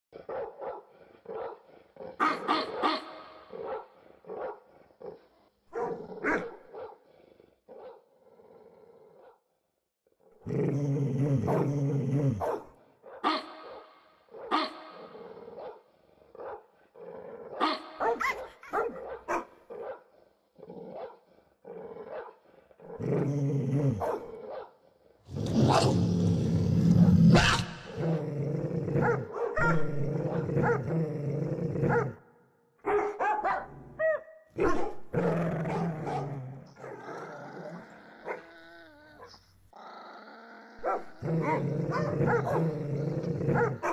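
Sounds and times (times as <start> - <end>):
dogs barking: 0.2 - 4.7, 5.7 - 7.1, 12.4 - 16.7, 17.5 - 20.1, 24.0 - 24.8, 28.9 - 30.9, 31.8 - 32.2, 32.8 - 37.0, 40.8 - 42.8, 43.4 - 43.9
low drawn-out dog growls: 3.4 - 9.6, 10.3 - 12.9, 14.9 - 17.8, 20.0 - 32.4, 34.6 - 43.9.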